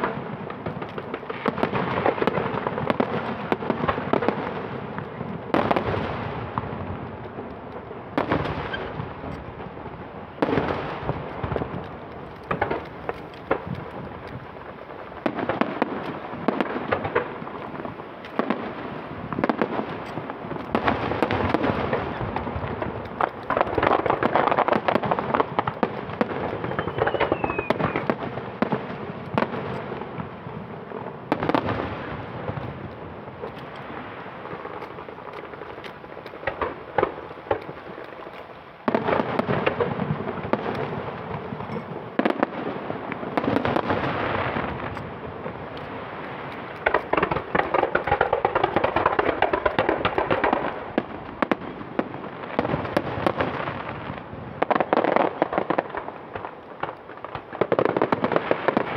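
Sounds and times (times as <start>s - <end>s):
fireworks bangs: 0.0s - 58.9s
fireworks crackling: 0.0s - 58.9s
falling whistle: 26.6s - 28.1s.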